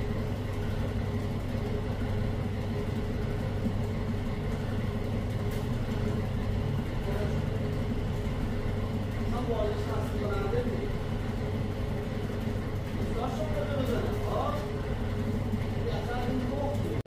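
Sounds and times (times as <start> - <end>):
machine humming with steady tones: 0.0 - 17.0.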